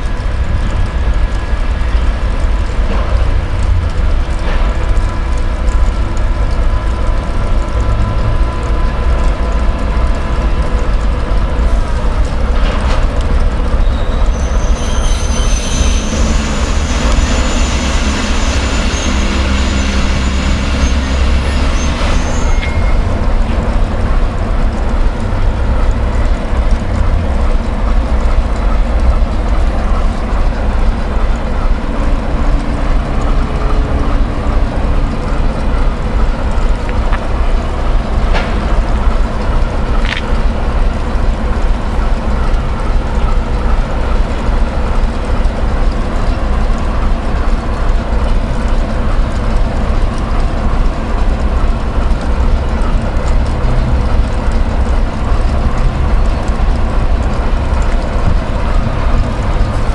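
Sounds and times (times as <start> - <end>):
diesel locomotive engine: 0.0 - 59.9
wheel and brake squeal: 12.8 - 59.9.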